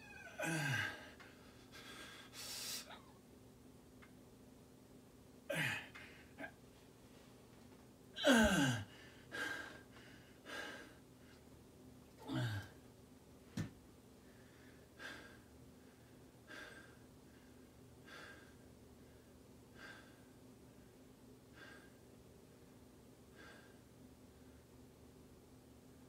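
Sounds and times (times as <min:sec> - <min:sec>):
man breathing hard: 0:00.4 - 0:03.0, 0:08.2 - 0:11.0, 0:14.3 - 0:18.6.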